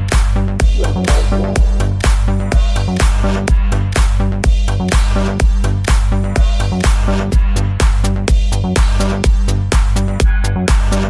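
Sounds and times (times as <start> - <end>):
house dance music: 0.6 - 3.6.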